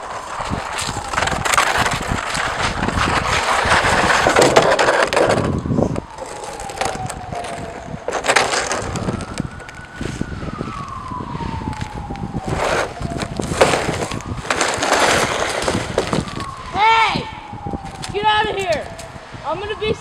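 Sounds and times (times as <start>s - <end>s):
plastic sled scraping on ice: 0.0s - 10.2s, 12.4s - 16.5s
distant siren wailing: 0.0s - 20.0s.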